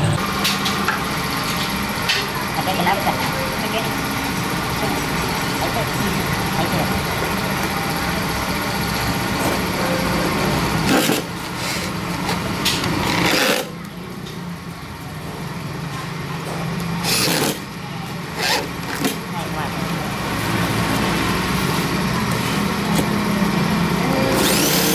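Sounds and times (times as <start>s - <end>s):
electric drill boring holes: 17.0s - 17.6s, 24.2s - 24.9s.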